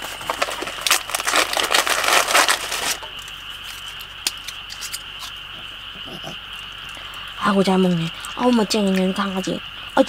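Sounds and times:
plastic packaging crinkling: 0:00.0 - 0:05.3
frogs and insects chorus: 0:00.0 - 0:10.0.

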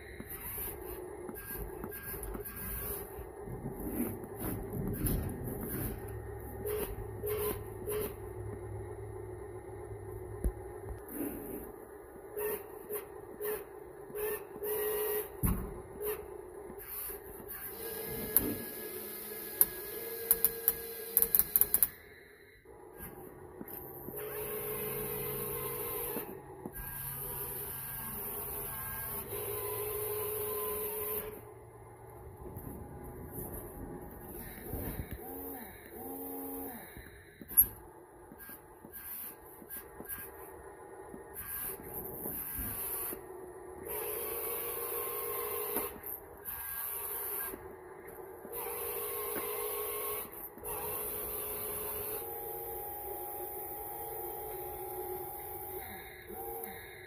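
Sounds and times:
small electric motors whirring: 0:00.0 - 0:08.2, 0:23.0 - 0:31.5, 0:33.4 - 0:40.5, 0:41.3 - 0:43.2, 0:43.9 - 0:47.7.

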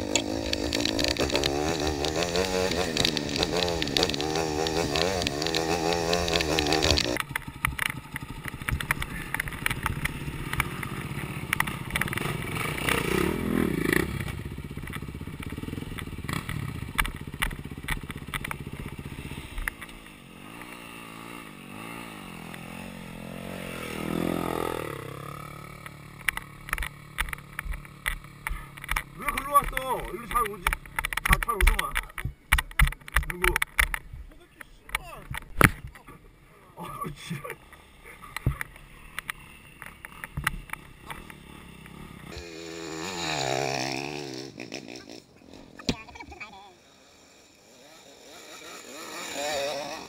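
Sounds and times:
dirt bike engine revving: 0:00.0 - 0:50.0.

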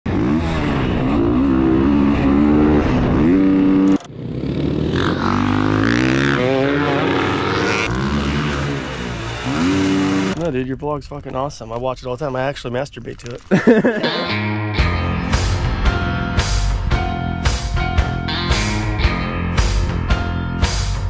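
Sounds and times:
dirt bike engines revving: 0:00.1 - 0:10.6.

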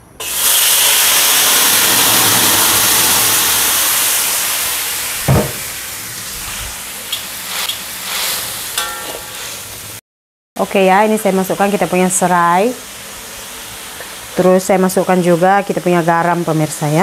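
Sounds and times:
spice paste sizzling in hot oil: 0:04.0 - 0:10.0, 0:10.7 - 0:17.0
low thump: 0:05.3 - 0:05.7.

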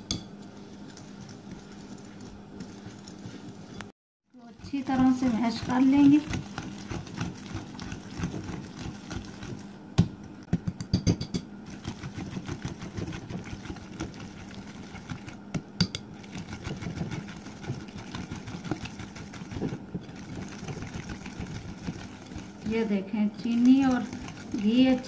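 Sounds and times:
steady low hum: 0:00.0 - 0:25.0
utensil scraping glass bowl: 0:23.4 - 0:25.0.

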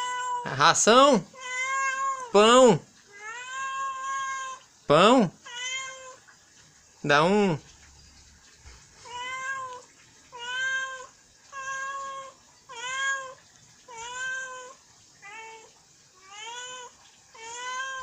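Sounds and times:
cat meowing: 0:00.0 - 0:00.6, 0:01.3 - 0:02.4, 0:03.1 - 0:04.7, 0:05.4 - 0:06.2, 0:09.0 - 0:18.0.

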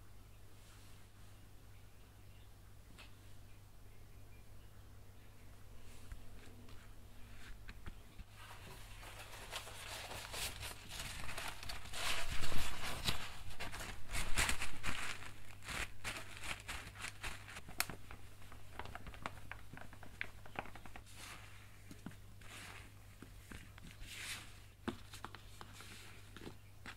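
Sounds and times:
kitchen paper rustling: 0:05.8 - 0:26.9.

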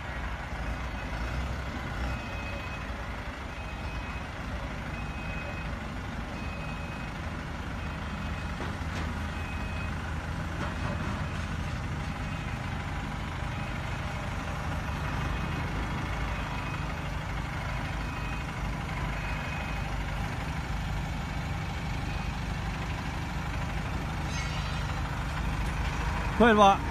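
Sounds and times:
truck engine running: 0:00.0 - 0:26.9
reversing alarm beeps: 0:02.1 - 0:02.9, 0:03.5 - 0:04.3, 0:05.0 - 0:05.8, 0:06.4 - 0:07.2, 0:07.8 - 0:08.6, 0:09.3 - 0:10.0, 0:18.0 - 0:20.3, 0:22.0 - 0:22.4.

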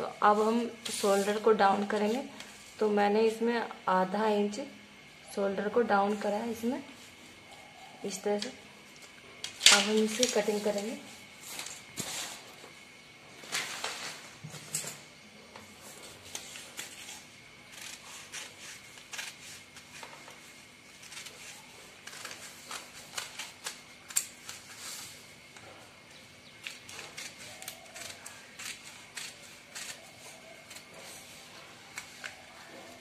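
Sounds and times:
scissors snipping paper: 0:16.3 - 0:24.9, 0:26.6 - 0:31.2.

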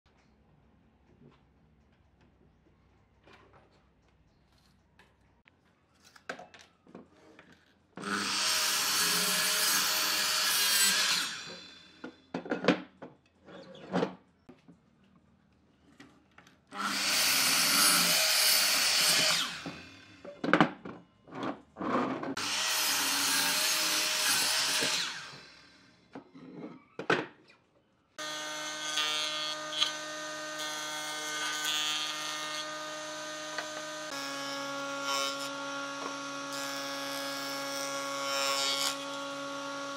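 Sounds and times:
miter saw cutting wood: 0:08.0 - 0:12.1, 0:16.7 - 0:20.2, 0:22.4 - 0:25.9, 0:28.2 - 0:39.9.

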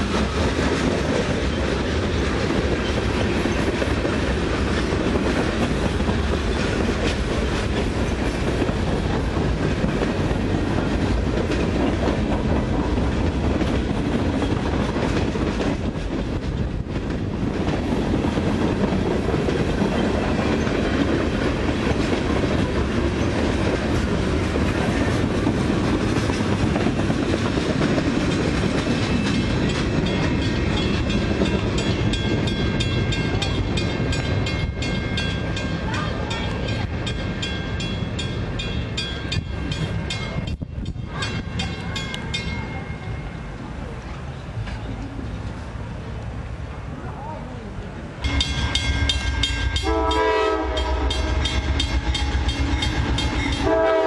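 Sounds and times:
freight train rumbling past: 0:00.0 - 0:54.0.

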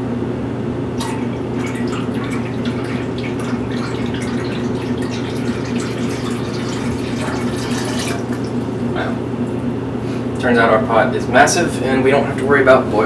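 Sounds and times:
water pouring into a pot: 0:01.0 - 0:09.0.

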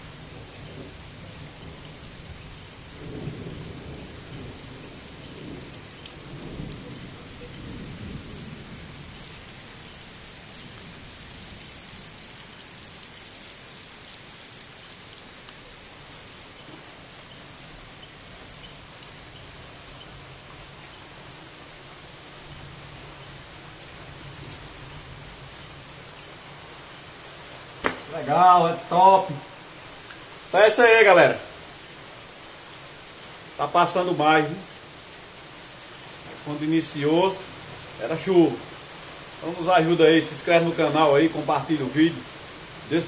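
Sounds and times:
low thunder rumbling: 0:00.0 - 0:12.2
heavy rain on paving: 0:00.0 - 0:43.0.

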